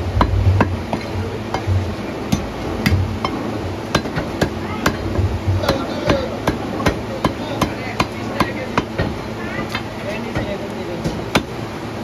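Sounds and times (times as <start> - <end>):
cleaver chopping on wooden block: 3.9 - 5.0, 11.1 - 11.5.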